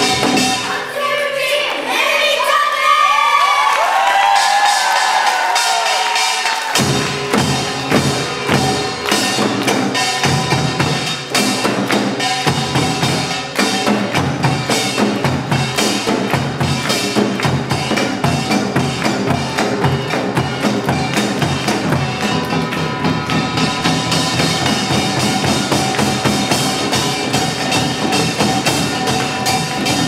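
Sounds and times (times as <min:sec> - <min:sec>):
drums beating fast rhythm: 0:00.0 - 0:01.0, 0:04.0 - 0:30.0
metal gongs ringing: 0:05.8 - 0:16.8.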